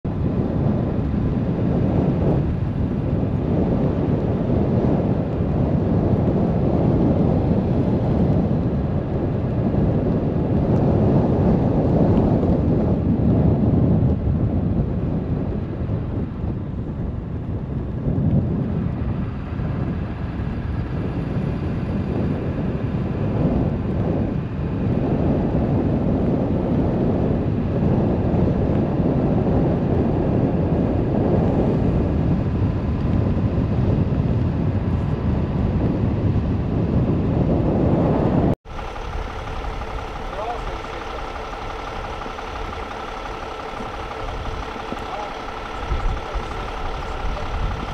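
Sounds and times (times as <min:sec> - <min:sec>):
wind buffeting microphone: 0:00.0 - 0:47.9
vehicle road noise: 0:38.1 - 0:47.9.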